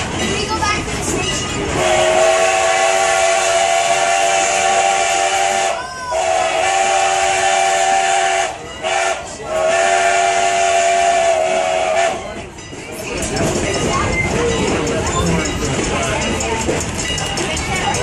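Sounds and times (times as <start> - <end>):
steam locomotive chime whistle: 1.7 - 12.8.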